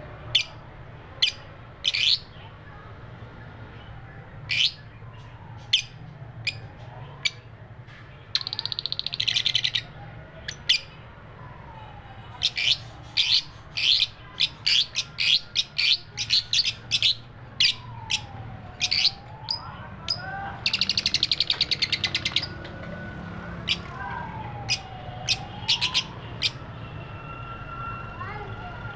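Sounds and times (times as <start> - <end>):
lovebirds chirping: 12.3 - 27.0.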